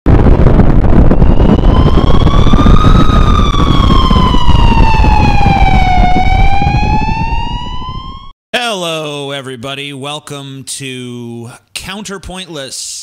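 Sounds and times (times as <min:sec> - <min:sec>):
explosion rumble: 0:00.1 - 0:08.3
siren wailing: 0:00.2 - 0:08.3.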